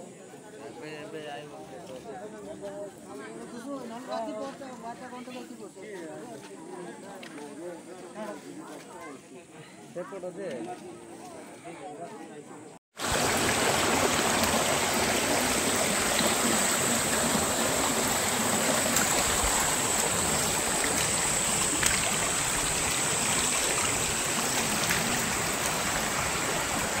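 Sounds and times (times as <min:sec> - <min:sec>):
muddy stream rushing: 0:13.0 - 0:27.0.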